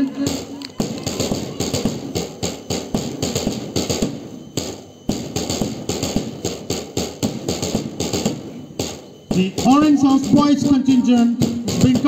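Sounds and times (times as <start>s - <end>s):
marching drums beating: 0.0s - 12.0s.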